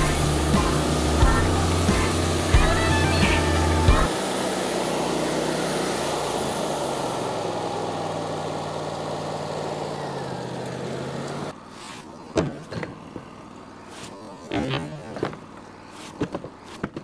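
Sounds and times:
broad hiss: 0:00.0 - 0:07.3
engine running: 0:00.0 - 0:17.0.

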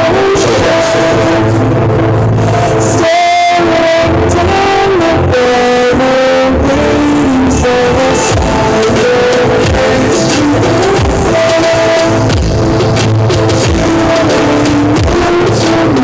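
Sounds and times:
loud music with heavy bass: 0:00.0 - 0:16.0.

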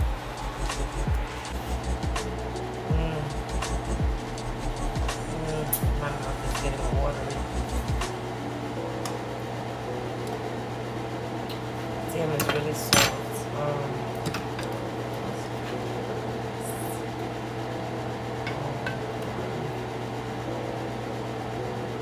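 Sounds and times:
steady low hum: 0:00.0 - 0:22.0
utensils clinking on dishes: 0:12.3 - 0:13.4.

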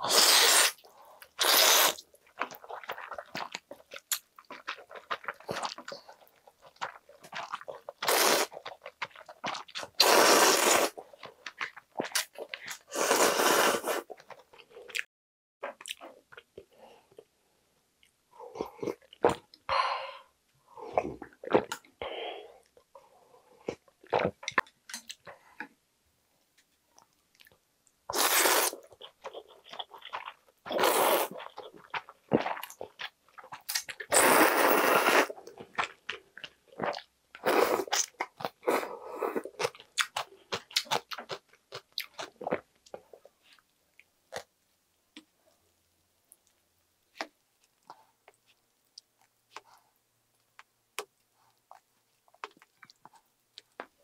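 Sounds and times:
loud noodle slurping: 0:00.0 - 0:00.8, 0:01.4 - 0:02.0, 0:08.0 - 0:08.6, 0:09.9 - 0:11.0, 0:12.8 - 0:14.2, 0:28.1 - 0:28.8, 0:30.7 - 0:31.4, 0:34.1 - 0:35.3
chewing and mouth smacks: 0:02.3 - 0:09.9, 0:50.5 - 0:54.0.

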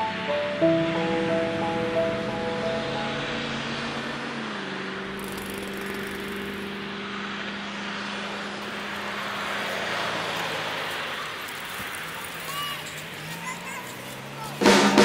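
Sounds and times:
tyres hissing on wet road: 0:05.1 - 0:15.0.

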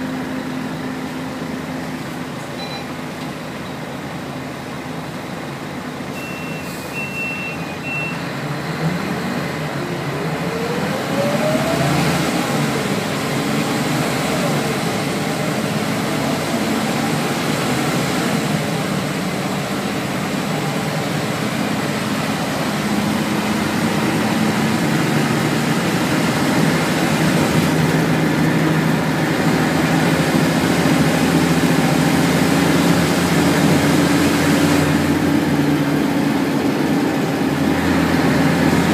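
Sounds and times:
bus engine drone: 0:00.0 - 0:38.9
road and tyre noise: 0:00.0 - 0:38.9
short high beeps: 0:02.6 - 0:03.0, 0:06.1 - 0:08.2.

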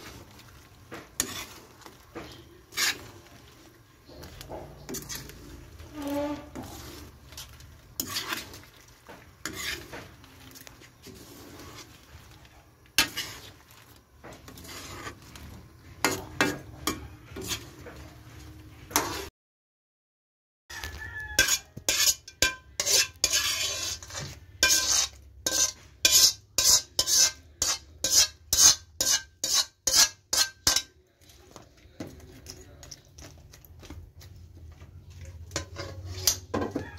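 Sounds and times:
metal ladle scraping a pan: 0:00.0 - 0:19.3, 0:20.7 - 0:32.6, 0:35.2 - 0:36.9
ladle clanking on a pan: 0:16.0 - 0:18.0, 0:21.3 - 0:31.0, 0:35.4 - 0:36.9.

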